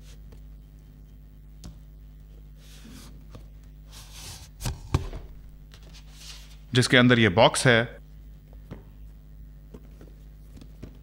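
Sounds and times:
cardboard sleeve sliding: 0:03.9 - 0:06.6.

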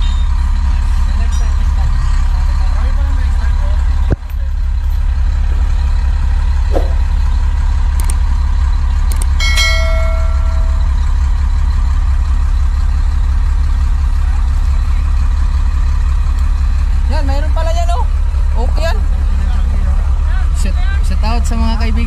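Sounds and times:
truck engine idling: 0:00.0 - 0:22.0
metallic clink: 0:09.4 - 0:11.1.

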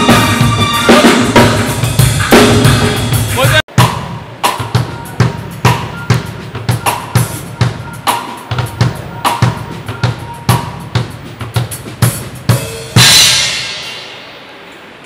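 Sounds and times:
drum kit beat: 0:00.0 - 0:14.6
cymbal crash: 0:12.5 - 0:14.7.

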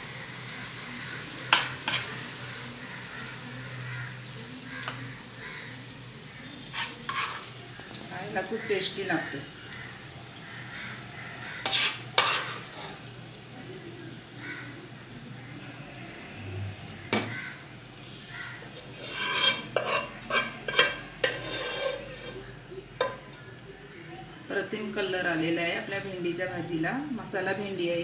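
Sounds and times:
metal spoon scraping pot: 0:06.7 - 0:07.6, 0:11.6 - 0:13.0, 0:18.7 - 0:23.2.

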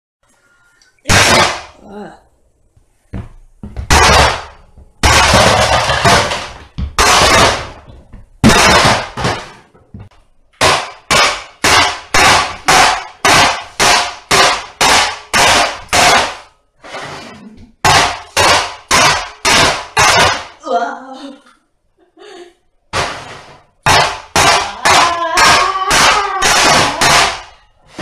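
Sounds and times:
hammer smashing plastic toy: 0:01.1 - 0:01.8, 0:03.6 - 0:09.8, 0:10.6 - 0:16.6, 0:17.8 - 0:20.6, 0:22.9 - 0:28.0.

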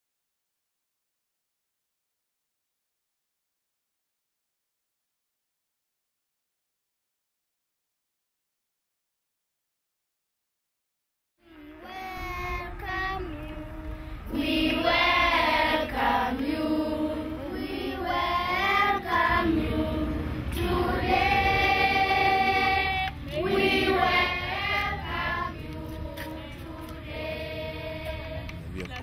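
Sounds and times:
children singing together: 0:11.4 - 0:28.7.

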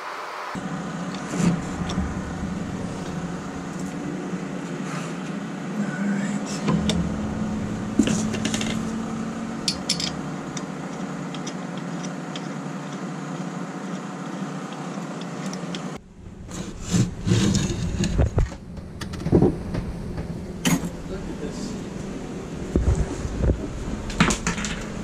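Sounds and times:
knocks and rubbing: 0:06.6 - 0:11.6.

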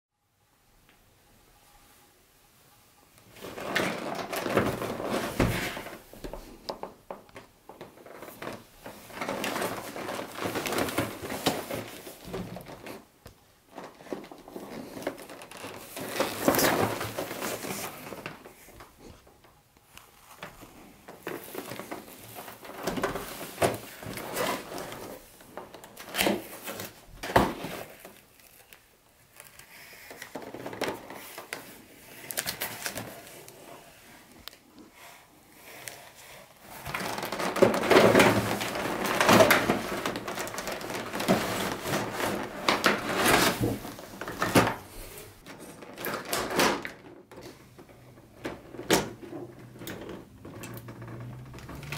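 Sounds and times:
cardboard scraping and rubbing: 0:03.3 - 0:06.1, 0:35.6 - 0:46.4.

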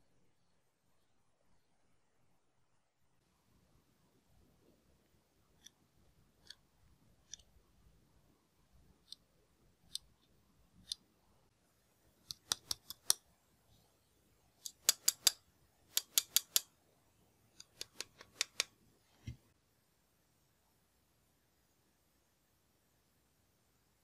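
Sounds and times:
sharp clicks: 0:14.6 - 0:16.7, 0:17.6 - 0:18.7.

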